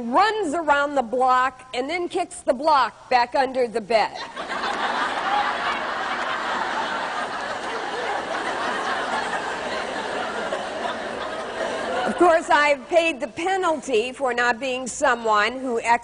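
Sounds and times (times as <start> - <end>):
crowd of women laughing: 4.2 - 12.6.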